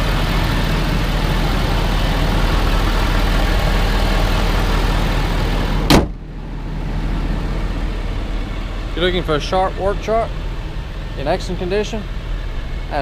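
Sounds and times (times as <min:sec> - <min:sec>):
diesel engine idling: 0:00.0 - 0:13.0
car hood slamming shut: 0:05.8 - 0:06.2.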